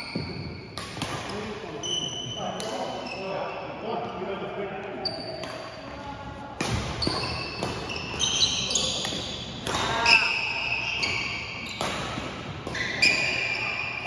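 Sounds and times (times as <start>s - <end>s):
racket hitting shuttlecock: 0.0s - 1.5s, 5.4s - 5.8s, 6.6s - 13.9s
sneakers squeaking on gym floor: 0.0s - 4.2s, 4.9s - 14.0s.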